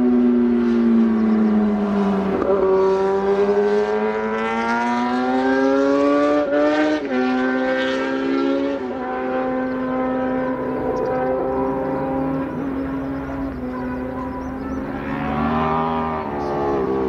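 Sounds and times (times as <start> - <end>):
race car engine accelerating: 0.0 - 17.0.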